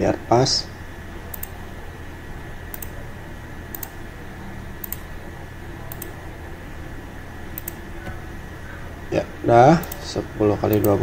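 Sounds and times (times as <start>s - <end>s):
steady low hum: 0.0s - 11.0s
computer mouse clicking: 1.3s - 1.6s, 2.7s - 3.0s, 3.7s - 4.0s, 4.8s - 5.1s, 5.9s - 6.2s, 7.5s - 8.3s, 9.8s - 10.1s, 10.7s - 11.0s.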